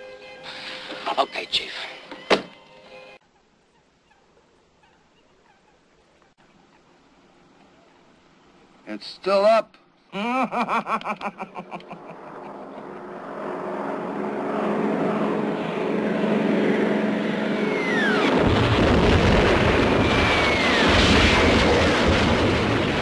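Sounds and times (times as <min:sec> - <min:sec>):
man chuckling: 0:10.1 - 0:12.7
warplane engine drone: 0:11.4 - 0:23.0
falling bomb whistle: 0:17.5 - 0:19.0, 0:19.6 - 0:21.5
heavy explosion: 0:18.0 - 0:23.0.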